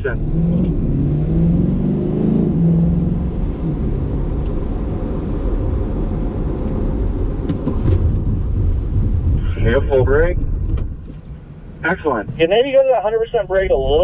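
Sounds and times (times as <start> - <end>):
car engine pulling hard: 0.0 - 11.2
tyre and road noise: 0.0 - 14.0.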